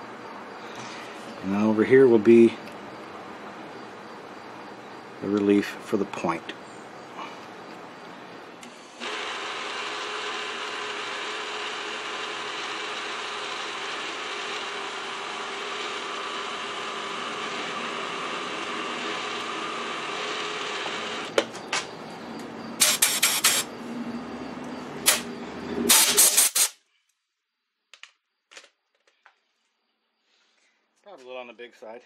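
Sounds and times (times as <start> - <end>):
milling machine whirring: 8.6 - 21.4, 22.7 - 23.8
sharp clicks: 21.3 - 23.7, 24.6 - 26.8
short loud noise bursts: 22.8 - 23.7, 25.0 - 26.8.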